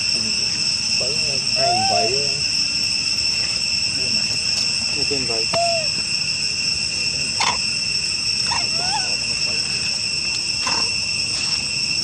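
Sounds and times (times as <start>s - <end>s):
insect chorus: 0.0s - 12.0s
rising and falling call: 5.4s - 6.0s.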